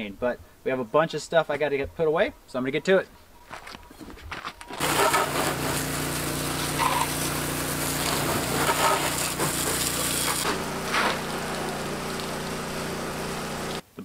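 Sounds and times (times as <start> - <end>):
pressure washer spray hissing: 4.8 - 13.8
steady motor hum: 4.8 - 13.8.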